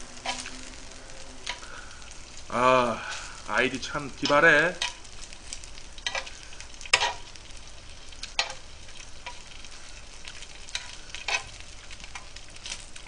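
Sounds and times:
meat sizzling on a griddle: 0.0s - 13.0s
metal tongs clicking on griddle: 0.2s - 0.5s, 1.4s - 1.6s, 4.2s - 6.3s, 6.9s - 7.4s, 8.2s - 9.6s, 10.2s - 12.9s.

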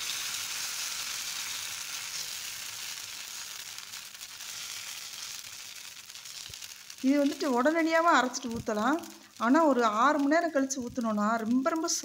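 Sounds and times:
batter sizzling on hot pan: 0.0s - 12.0s.

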